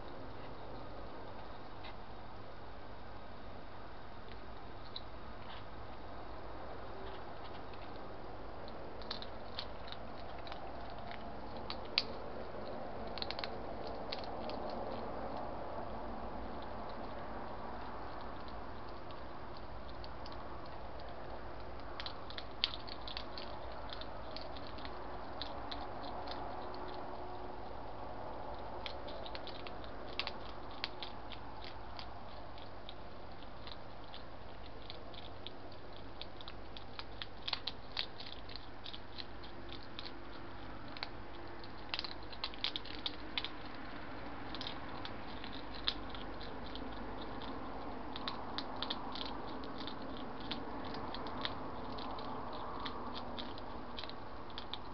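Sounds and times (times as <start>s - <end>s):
steady background hiss: 0.0s - 54.9s
hedgehogs crunching food: 4.2s - 54.9s.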